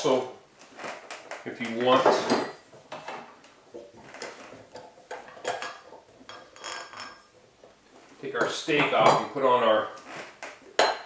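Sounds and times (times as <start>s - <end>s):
metal clinks and knocks: 3.8s - 7.5s.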